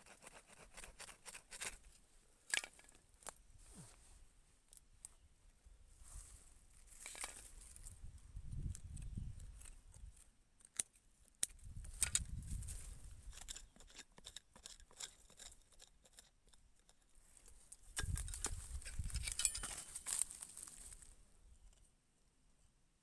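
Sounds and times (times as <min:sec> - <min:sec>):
hands scraping dry soil: 0:00.0 - 0:02.0, 0:11.9 - 0:21.9
dry twigs crackling: 0:17.3 - 0:21.2.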